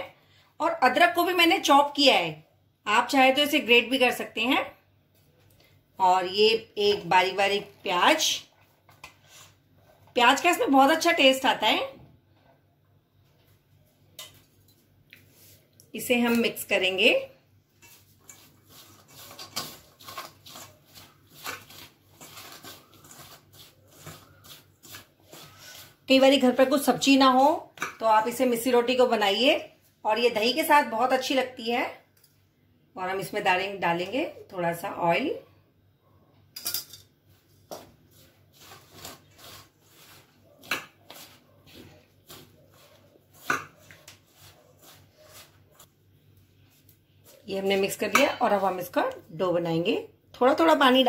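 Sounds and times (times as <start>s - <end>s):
hand rubbing flour in steel bowl: 17.8s - 26.8s
hand mixing flour in steel bowl: 17.8s - 28.0s, 37.3s - 49.4s.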